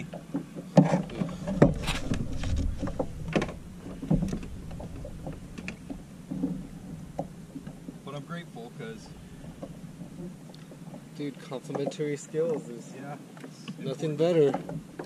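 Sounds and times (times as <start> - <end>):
fishing gear knocking and clicking: 0.0 - 8.1
steady low rumble: 1.1 - 11.2.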